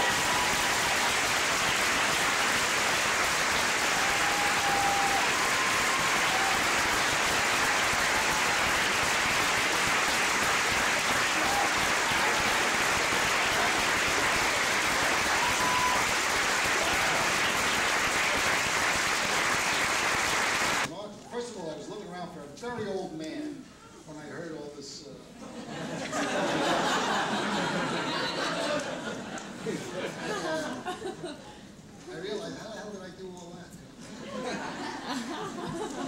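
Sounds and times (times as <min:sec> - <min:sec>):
audience applauding: 0:00.0 - 0:20.9.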